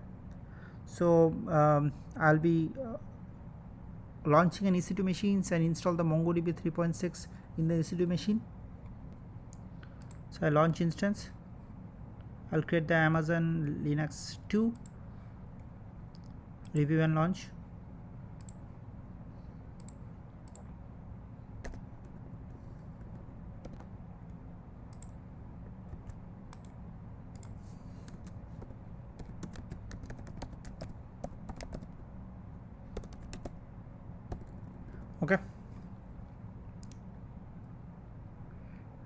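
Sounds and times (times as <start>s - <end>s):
keyboard typing: 21.6s - 22.2s, 23.0s - 23.9s, 24.9s - 25.2s, 25.9s - 32.0s, 32.9s - 33.6s, 34.3s - 35.0s.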